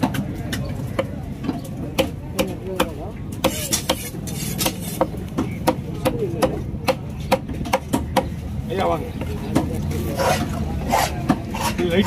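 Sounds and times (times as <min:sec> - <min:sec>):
knife chopping fish on wood: 0:00.0 - 0:08.4.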